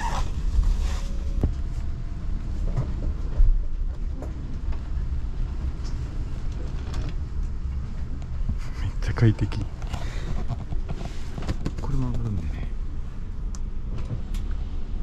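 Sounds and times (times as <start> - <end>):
train rumble inside cabin: 0.0 - 15.0.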